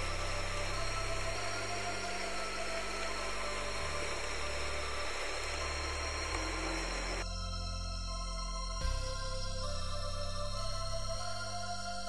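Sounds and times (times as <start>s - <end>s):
steady hiss: 0.0s - 7.2s
soft background music: 0.0s - 12.0s.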